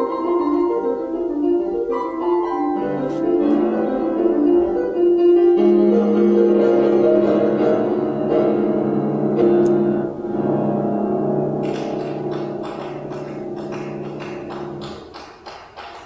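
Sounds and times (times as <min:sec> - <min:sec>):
classical piano music: 0:00.0 - 0:16.0.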